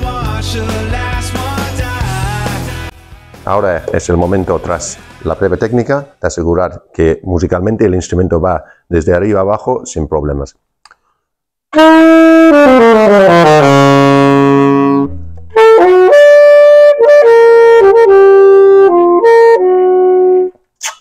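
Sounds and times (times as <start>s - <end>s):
alto saxophone playing: 11.7s - 20.6s.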